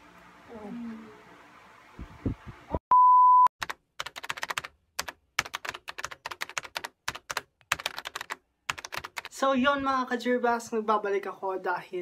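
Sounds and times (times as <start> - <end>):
short steady beep: 2.9 - 3.5
computer keyboard typing clicks: 3.6 - 9.3.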